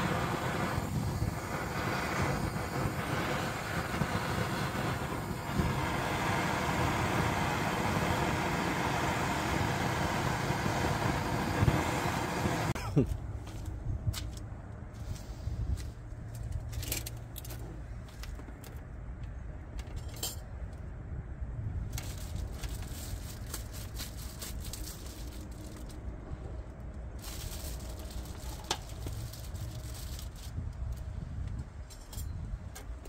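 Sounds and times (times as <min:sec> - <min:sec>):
steady low rumble: 0:00.0 - 0:19.8.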